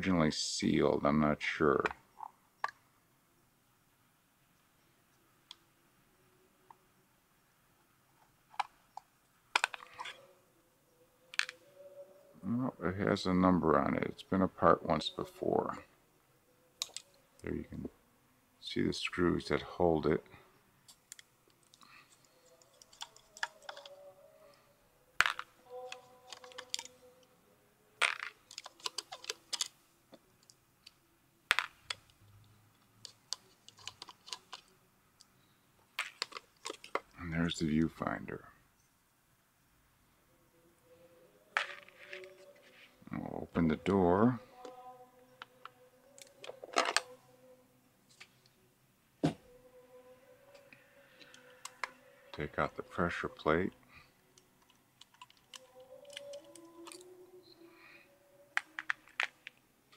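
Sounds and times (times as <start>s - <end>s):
small metal parts handled: 20.9s - 24.0s, 25.2s - 27.0s, 28.0s - 29.8s, 33.0s - 34.7s, 36.0s - 37.1s, 41.6s - 42.7s, 46.2s - 47.1s, 55.0s - 57.1s.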